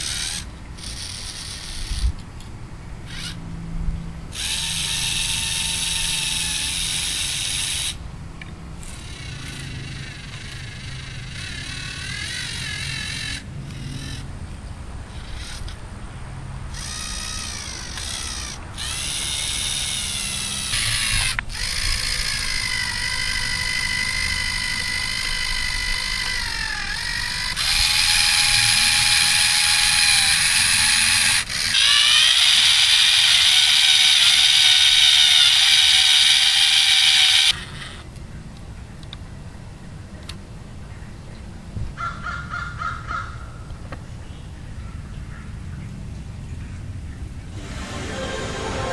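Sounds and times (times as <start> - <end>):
servo motors whining: 0.0 - 2.2, 3.1 - 3.4, 4.4 - 8.0, 15.1 - 15.8, 16.8 - 38.0.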